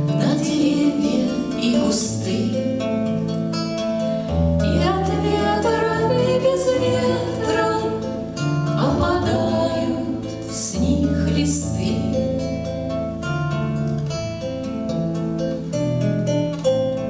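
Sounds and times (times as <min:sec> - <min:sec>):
acoustic guitar: 0:00.0 - 0:17.0
women singing: 0:00.1 - 0:03.1, 0:04.6 - 0:12.4.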